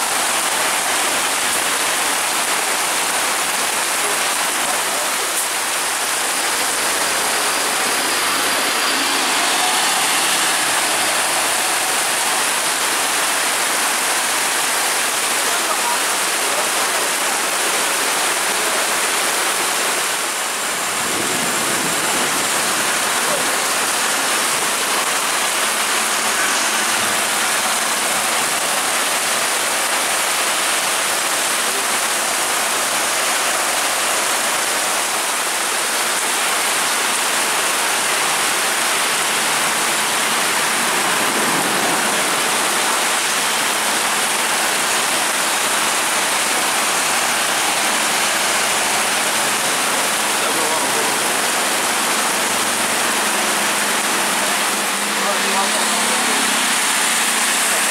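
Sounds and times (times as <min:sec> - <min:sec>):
heavy rain pouring: 0:00.0 - 0:57.9.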